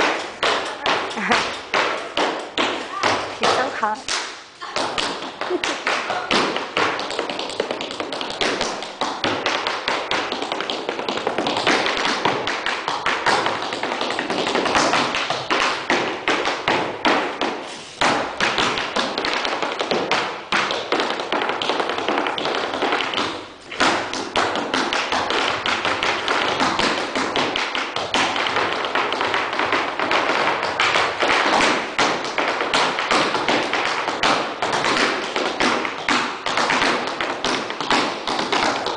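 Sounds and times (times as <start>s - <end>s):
tap shoes on wooden floor: 0.0s - 38.9s.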